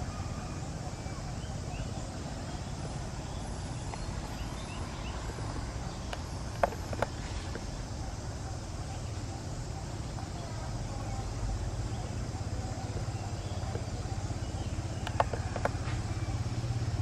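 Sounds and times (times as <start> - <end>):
low outdoor rumble: 0.0 - 17.0
sharp clicks: 6.1 - 7.6, 15.0 - 15.9.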